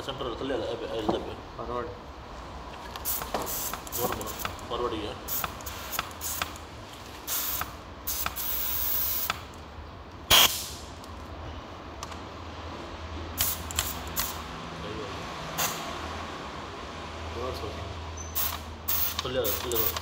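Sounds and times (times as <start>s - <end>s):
hiss: 3.0s - 4.5s, 5.3s - 6.5s, 7.3s - 9.4s, 10.3s - 10.9s, 13.4s - 14.4s, 18.4s - 20.0s.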